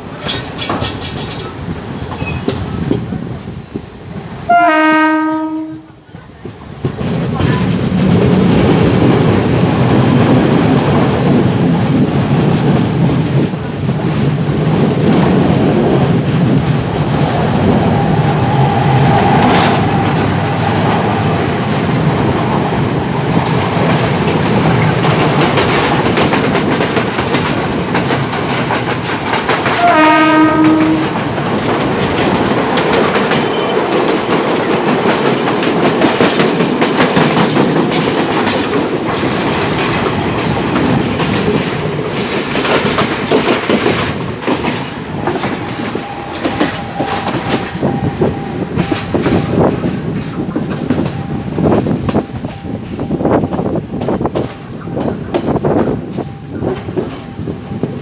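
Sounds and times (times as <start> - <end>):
train wheels rumbling on rails: 0.0 - 58.0
train horn: 4.5 - 6.0, 29.6 - 31.2.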